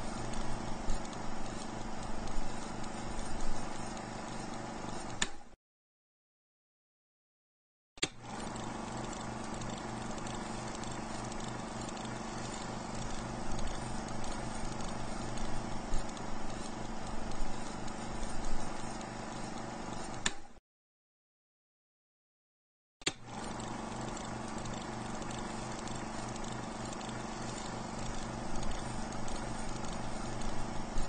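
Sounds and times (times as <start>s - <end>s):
film projector rattle and whir: 0.0s - 5.4s, 8.0s - 20.5s, 23.1s - 31.0s
projector switch click: 5.2s - 5.4s, 20.2s - 20.5s.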